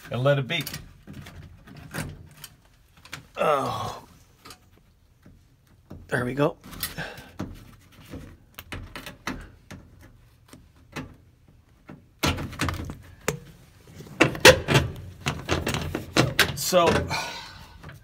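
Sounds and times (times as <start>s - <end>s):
clatter and rubbing: 13.6s - 16.7s.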